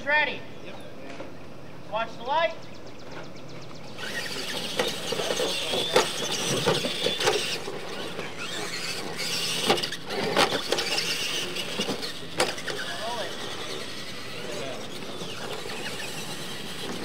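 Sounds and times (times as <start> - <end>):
electric motor and gear whine: 3.6 - 17.0
trucks knocking on wooden ramps: 4.0 - 12.8.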